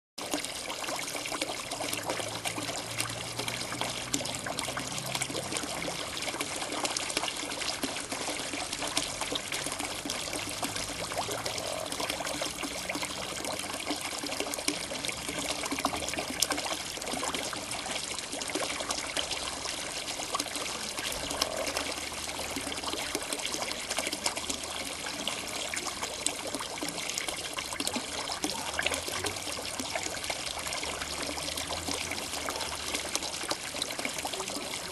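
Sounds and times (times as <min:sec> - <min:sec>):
water trickling and splashing: 0:00.2 - 0:34.9
frogs croaking: 0:10.4 - 0:13.5, 0:20.6 - 0:23.1.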